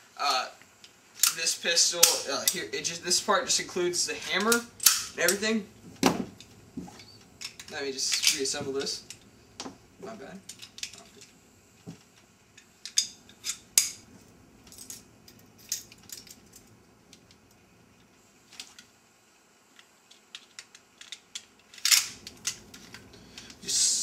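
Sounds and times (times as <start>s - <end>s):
metal pistol parts clicking: 4.4s - 5.4s, 12.6s - 14.0s, 14.7s - 17.4s, 19.8s - 23.5s.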